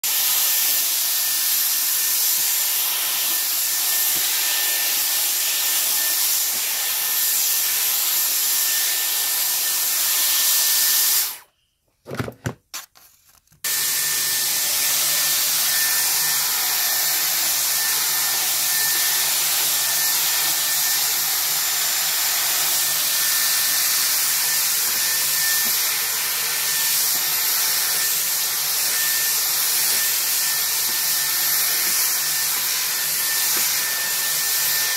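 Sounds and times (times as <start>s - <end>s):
hot-air styler blowing with whine: 0.0s - 11.5s, 13.7s - 34.9s.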